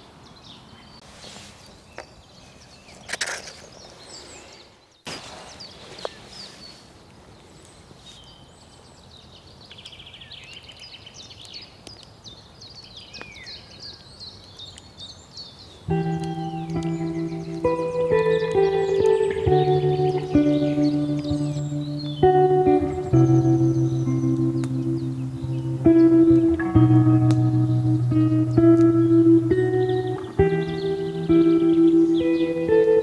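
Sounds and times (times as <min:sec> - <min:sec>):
outdoor background hiss: 0:00.0 - 0:33.0
songbirds chirping and trilling: 0:00.0 - 0:33.0.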